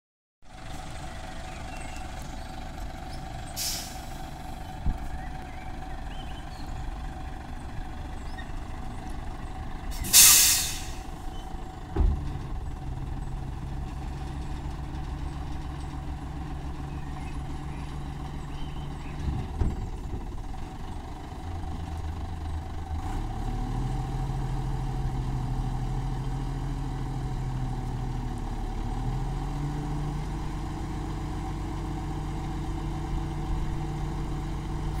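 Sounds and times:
garbage truck engine running: 0.5s - 35.0s
air hiss bursts: 10.0s - 11.1s
sharp clunks: 11.9s - 12.6s.

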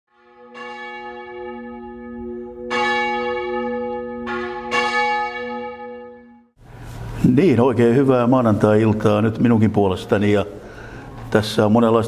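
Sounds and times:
church bells ringing: 0.1s - 6.6s.

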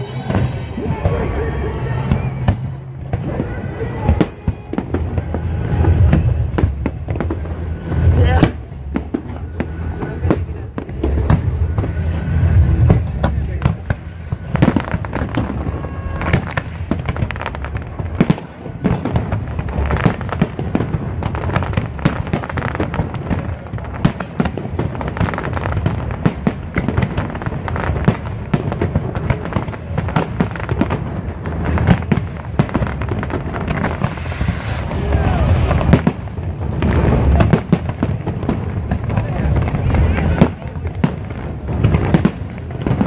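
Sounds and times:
low rumble: 0.0s - 20.0s, 31.0s - 40.1s
fireworks bangs: 0.0s - 43.0s
fireworks crackling: 0.0s - 43.0s.

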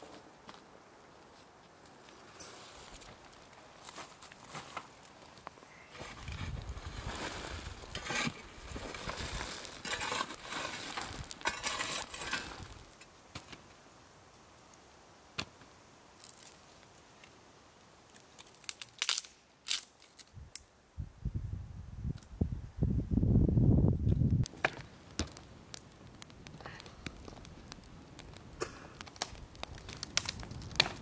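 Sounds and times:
shovel scraping through coals: 5.9s - 13.6s.

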